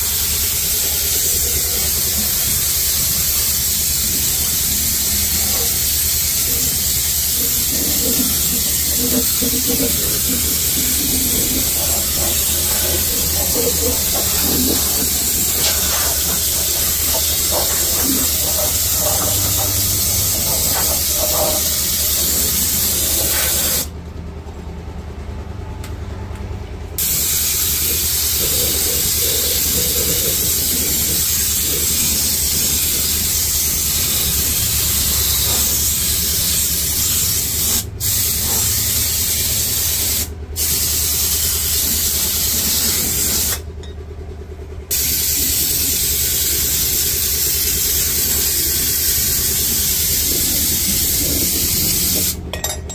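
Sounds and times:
spray gun hissing: 0:00.0 - 0:23.9, 0:27.0 - 0:43.6, 0:44.9 - 0:52.4.

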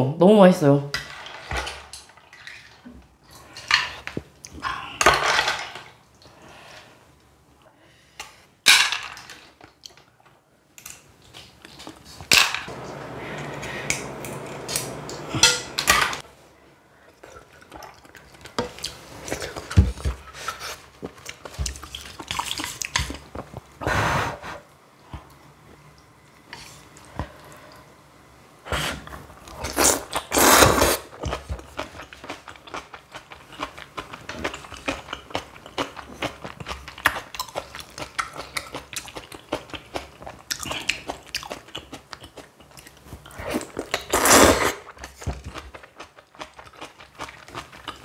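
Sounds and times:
utensils clinking against a bowl: 0:15.3 - 0:16.2.

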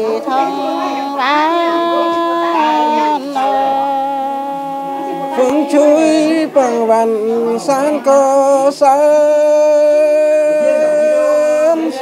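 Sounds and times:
women singing slow song: 0:00.0 - 0:07.6.

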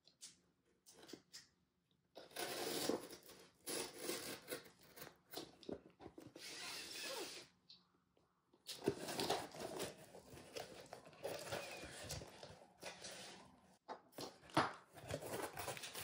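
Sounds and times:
cardboard box tape tearing and rustling: 0:08.8 - 0:12.4, 0:15.0 - 0:16.0.

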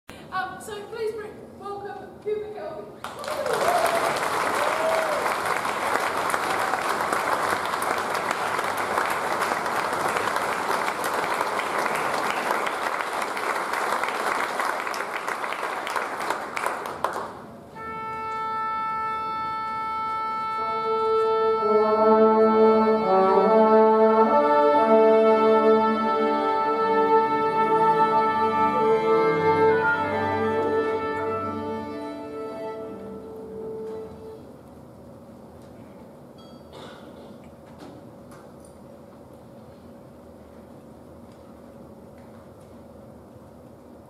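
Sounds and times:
audience applauding: 0:03.0 - 0:17.6
symphony orchestra playing: 0:17.7 - 0:34.7.

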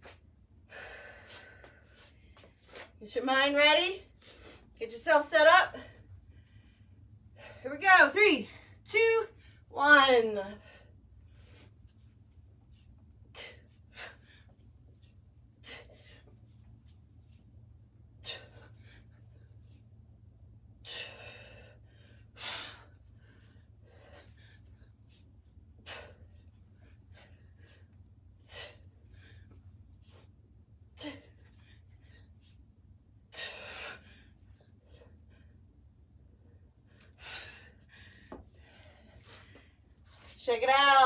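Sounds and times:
faint low hum: 0:00.0 - 0:41.0
person breathing hard: 0:00.6 - 0:02.5.

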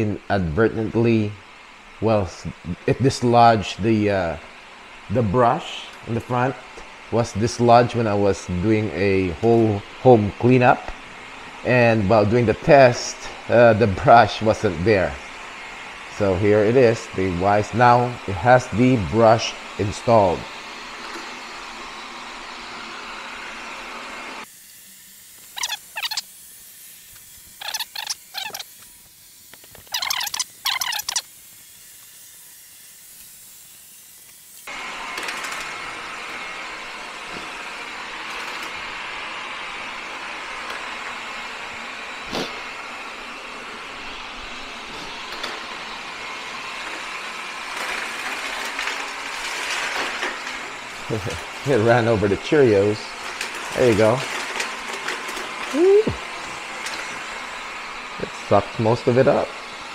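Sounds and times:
robot vacuum running on tile: 0:00.0 - 0:59.9
short high-pitched chirps: 0:29.9 - 0:31.2
cereal rattling in vacuum: 0:34.6 - 0:42.4, 0:45.2 - 0:59.5.

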